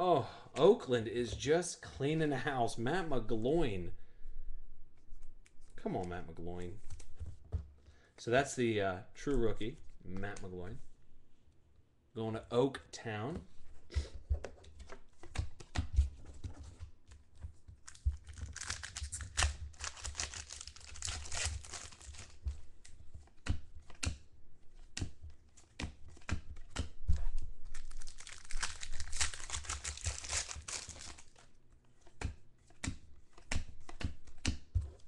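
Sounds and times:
wrapper rustling: 17.8 - 22.4, 27.6 - 31.6.

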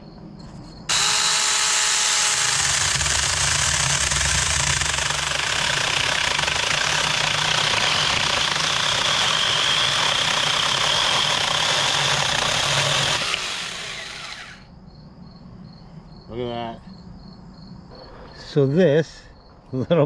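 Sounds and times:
chainsaw cutting branch: 0.9 - 14.6.

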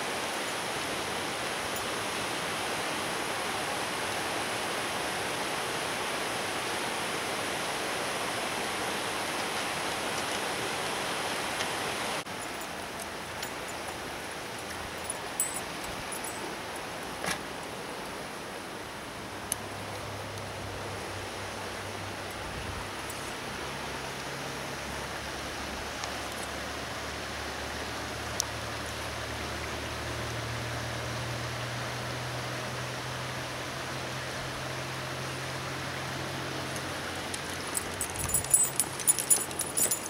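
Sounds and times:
flowing creek water: 0.0 - 40.0.

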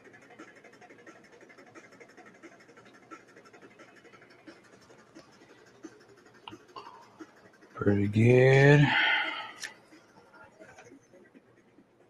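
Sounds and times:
pen scratching on paper: 0.0 - 7.8.

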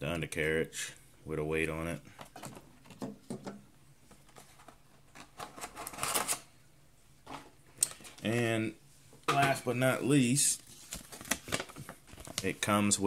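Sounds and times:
packaging rustle: 10.6 - 12.7.

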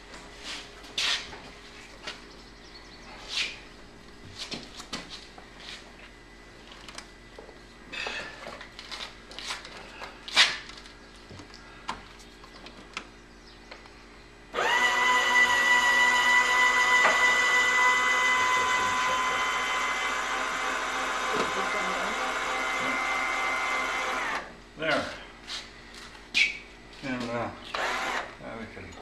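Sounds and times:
electric motor whining: 14.5 - 24.6, 27.6 - 28.4.

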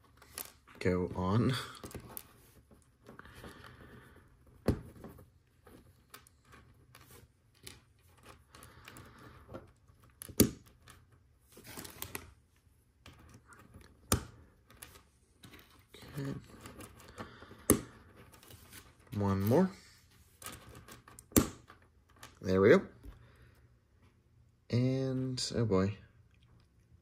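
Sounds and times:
plastic pieces rustling and clicking: 0.0 - 0.8.

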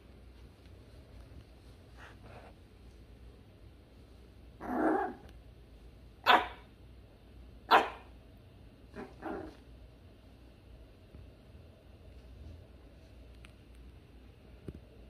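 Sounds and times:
puppy barking: 6.2 - 6.7, 7.7 - 8.1.

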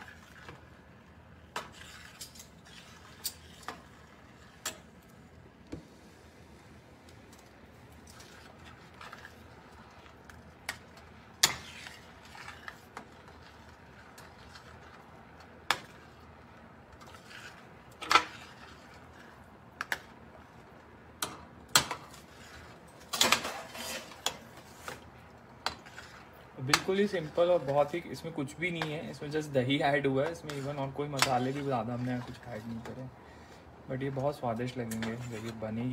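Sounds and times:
metal ladle scraping a pan: 0.0 - 0.8, 1.5 - 4.9, 11.0 - 15.0, 17.0 - 19.9, 22.1 - 25.0, 25.6 - 27.9, 30.2 - 33.6.

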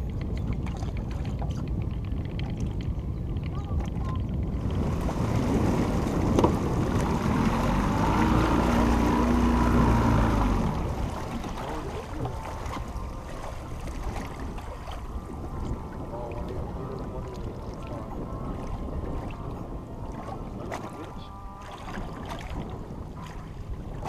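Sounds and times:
outboard motor running: 0.0 - 24.0
wind buffeting microphone: 0.0 - 24.0.

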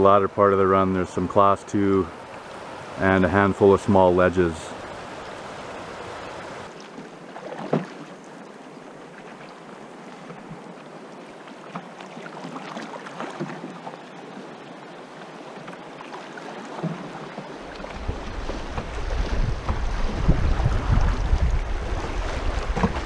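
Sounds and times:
river water lapping around canoe: 0.0 - 23.0
paddle splashes and knocks: 6.4 - 23.0.

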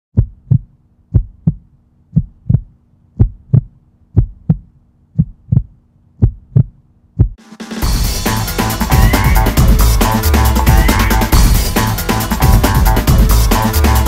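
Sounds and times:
heartbeat thumps: 0.2 - 8.0.

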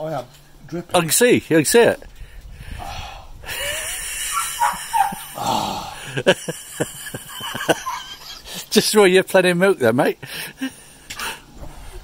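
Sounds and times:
man panting and blowing: 2.2 - 4.6, 5.2 - 6.3, 10.2 - 12.0
man groaning: 5.3 - 6.2.

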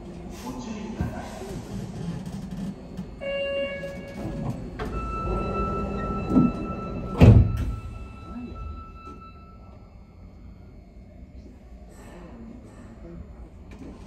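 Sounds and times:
low hum of train car: 0.0 - 14.0
held warning tone: 3.2 - 10.7
train doors thunk shut: 3.9 - 8.1
door chime: 4.8 - 9.8.

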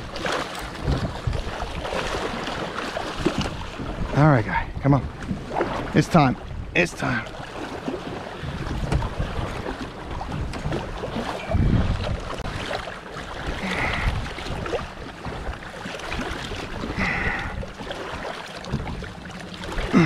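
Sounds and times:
water splashing against boat: 0.0 - 20.0.

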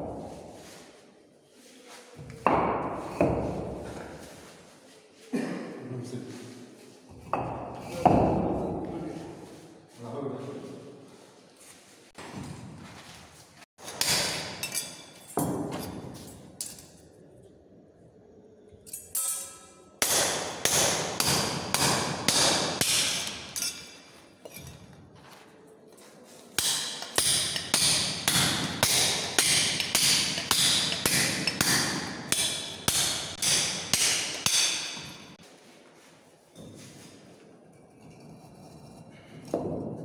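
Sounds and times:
hammer striking brick: 20.0 - 23.6, 26.6 - 35.3.

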